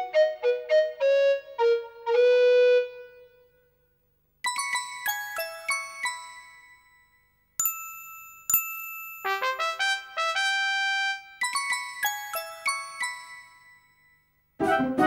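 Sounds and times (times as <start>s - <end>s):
bell-like chime music: 4.4s - 10.2s, 11.3s - 14.5s.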